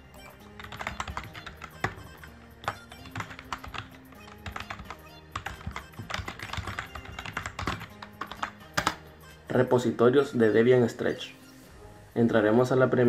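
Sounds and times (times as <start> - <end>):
quiet background music: 0.0 - 13.0
computer keyboard keys clicking: 0.4 - 9.0.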